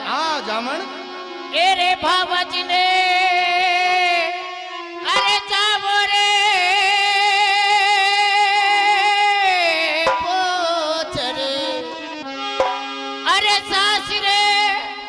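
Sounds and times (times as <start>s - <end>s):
steady accompanying note: 12.5s - 13.2s.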